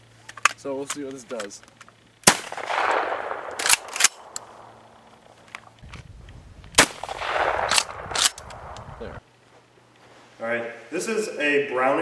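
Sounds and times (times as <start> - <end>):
shotgun shots with echo: 2.2 - 5.1, 6.8 - 8.8.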